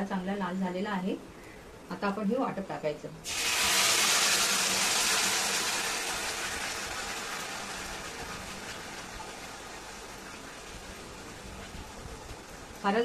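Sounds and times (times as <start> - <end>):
paste sizzling in hot oil: 3.2 - 10.7.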